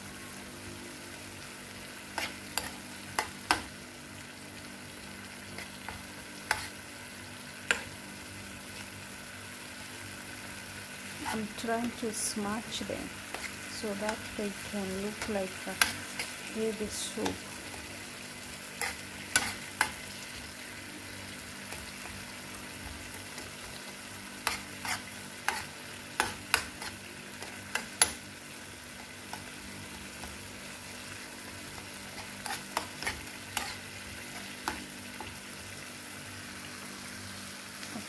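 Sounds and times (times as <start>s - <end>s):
tomatoes sizzling in oil: 0.0s - 38.0s
metal spoon scraping a pan: 2.1s - 3.6s, 5.5s - 6.8s, 13.3s - 17.9s, 18.7s - 20.0s, 24.4s - 28.2s, 32.1s - 35.4s.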